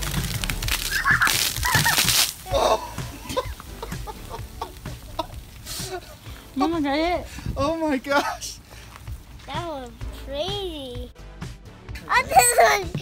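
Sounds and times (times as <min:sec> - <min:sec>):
liquid splashing on plastic table: 0:00.0 - 0:06.6
hissing gush of spraying foam: 0:00.0 - 0:07.6
children squealing: 0:00.8 - 0:03.5.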